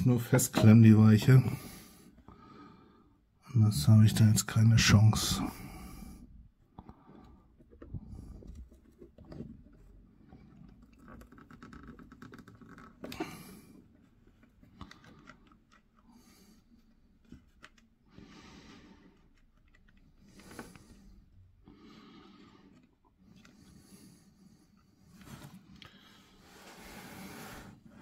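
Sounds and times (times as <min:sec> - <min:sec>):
breaths: 0:01.2 - 0:03.4, 0:05.3 - 0:08.8, 0:13.0 - 0:13.9, 0:14.7 - 0:17.4, 0:18.1 - 0:28.0
fingers clicking and rustling: 0:07.7 - 0:13.2, 0:14.4 - 0:16.2.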